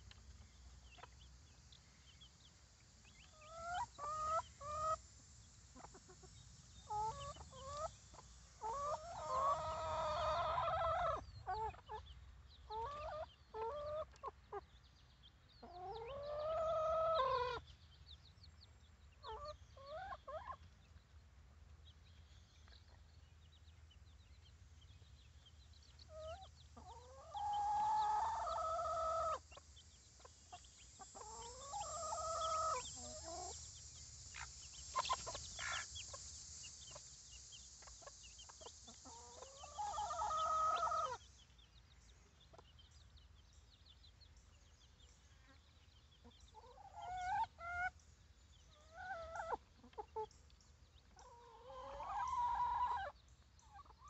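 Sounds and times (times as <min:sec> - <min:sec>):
chickens calling: 0:00.0 - 0:18.0, 0:19.0 - 0:21.2, 0:24.0 - 0:43.0, 0:44.8 - 0:54.0
chickens clucking: 0:00.0 - 0:18.0, 0:19.0 - 0:22.0, 0:22.6 - 0:43.3, 0:44.2 - 0:54.0.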